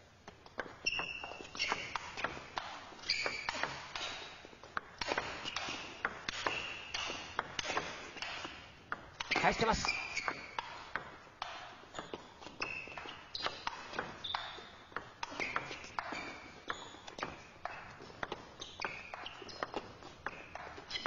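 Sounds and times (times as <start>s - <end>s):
shoes squeaking on floor: 0.0s - 21.0s.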